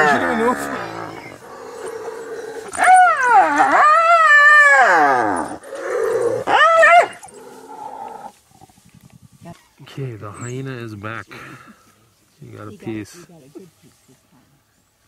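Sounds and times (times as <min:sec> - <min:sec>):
hyena squealing cries: 0:00.0 - 0:07.4.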